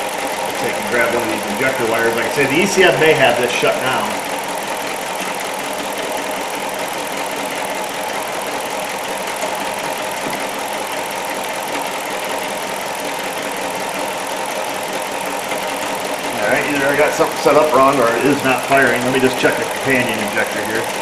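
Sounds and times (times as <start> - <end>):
misfiring engine idling: 0.0 - 21.0.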